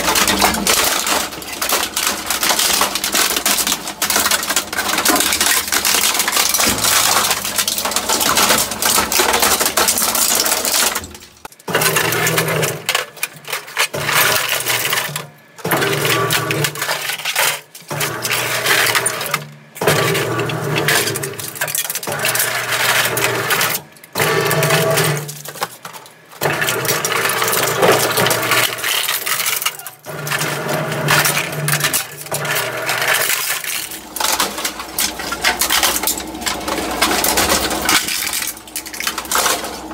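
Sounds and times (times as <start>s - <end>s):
shredder crunching plastic and metal: 0.0s - 39.9s
shredder low hum: 0.0s - 39.9s.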